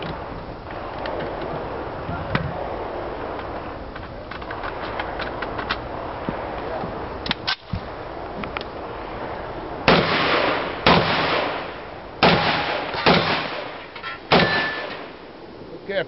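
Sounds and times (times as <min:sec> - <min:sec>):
shotgun shots with echo: 0:09.9 - 0:15.2.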